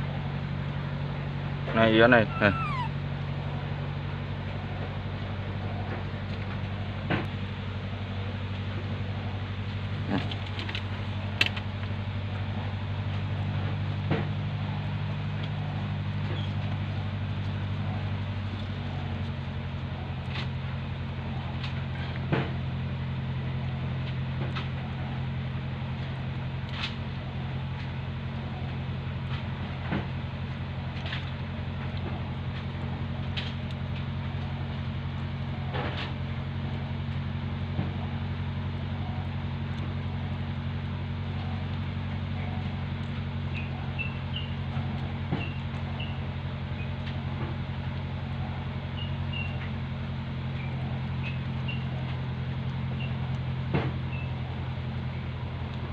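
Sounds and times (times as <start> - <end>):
low motor hum: 0.0 - 55.9.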